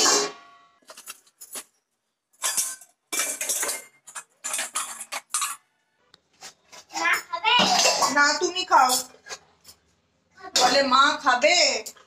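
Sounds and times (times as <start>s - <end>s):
metal dishes clattering on rack: 2.4s - 5.6s.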